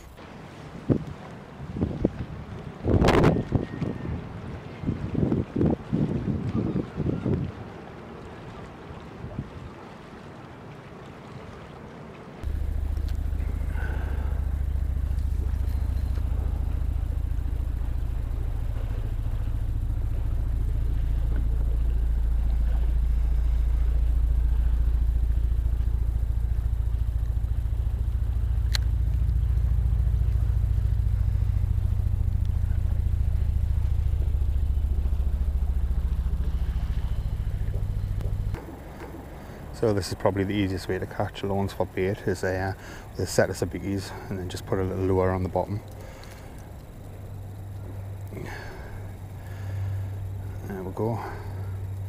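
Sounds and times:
low engine drone: 0:00.0 - 0:52.0.

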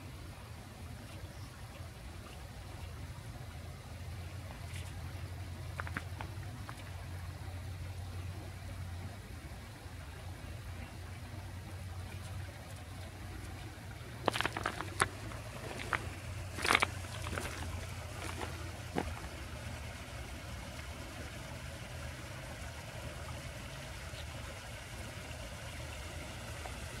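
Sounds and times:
low hum: 0:00.0 - 0:27.0
sharp clicks and scuffs: 0:14.3 - 0:19.3.

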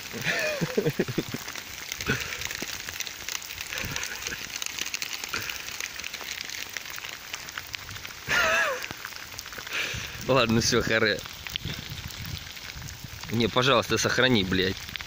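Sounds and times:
heavy rain on asphalt: 0:00.0 - 0:15.0
person's voice: 0:10.2 - 0:11.2, 0:13.3 - 0:14.8.

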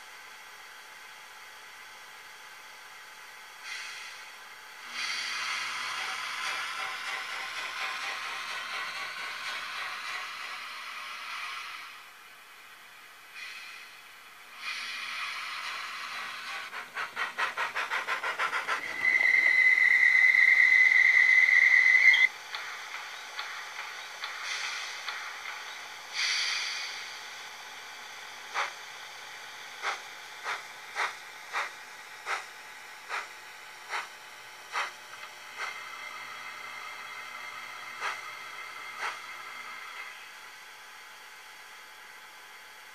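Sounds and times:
steam locomotive chuffs: 0:00.0 - 0:12.4, 0:13.0 - 0:42.9
steam hissing: 0:03.5 - 0:12.2, 0:13.2 - 0:40.8
long steady steam whistle: 0:18.9 - 0:22.3.

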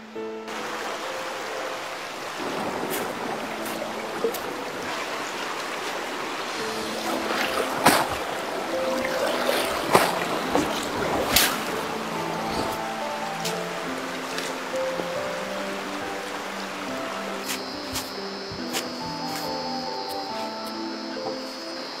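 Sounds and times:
stream rushing over stones: 0:00.1 - 0:22.0
loud splashes: 0:00.5 - 0:19.2
fibre swished in water: 0:02.8 - 0:12.9.

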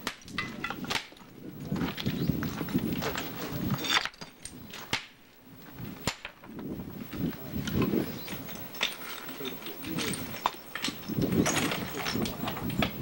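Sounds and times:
indistinct low voices: 0:06.6 - 0:13.0.

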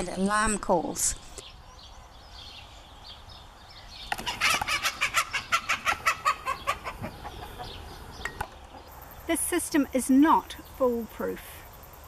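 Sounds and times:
chicken squawking: 0:04.2 - 0:07.8.

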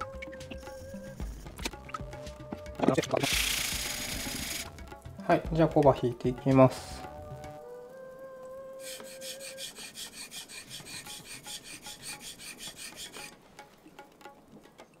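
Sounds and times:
knife blade rubbing on whetstone: 0:03.2 - 0:04.7, 0:08.8 - 0:13.4.

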